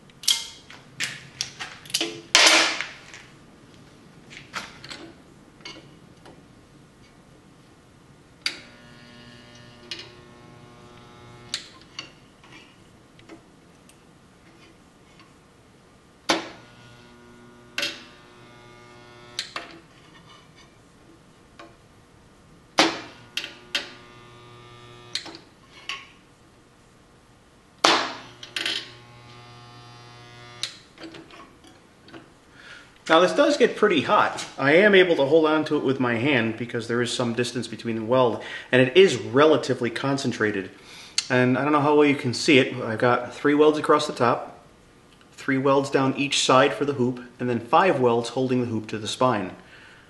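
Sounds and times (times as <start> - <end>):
spot welder click: 8.4 - 12.1, 16.3 - 19.8, 22.8 - 25.5, 27.8 - 31.2
spot welder crack and hum: 8.4 - 12.2, 16.3 - 19.9, 22.8 - 26.0, 27.8 - 31.4.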